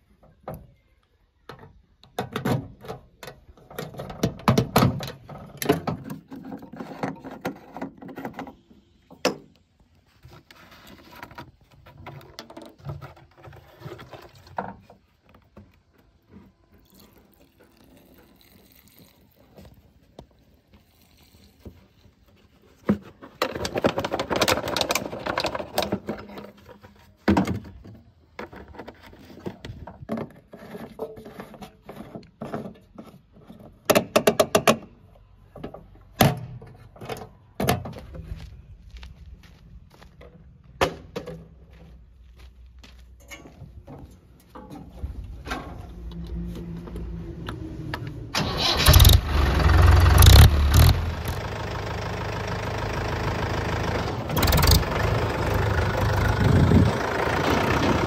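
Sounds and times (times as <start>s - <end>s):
plastic rustle and clatter: 10.1s - 33.8s
diesel pouring from bottle: 16.8s - 19.8s.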